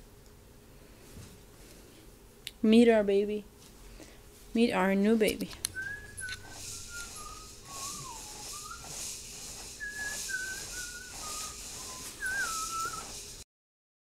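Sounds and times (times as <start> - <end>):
person whistling a tune: 5.7 - 13.4.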